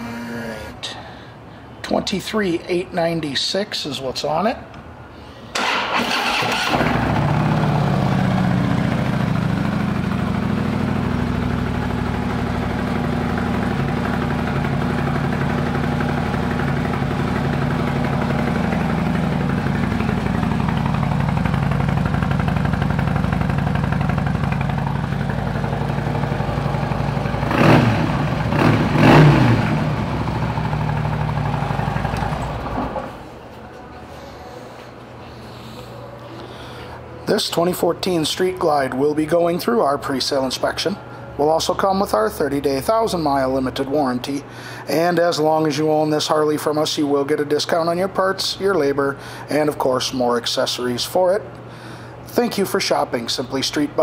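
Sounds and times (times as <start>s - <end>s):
motorcycle engine idling: 6.8s - 33.1s.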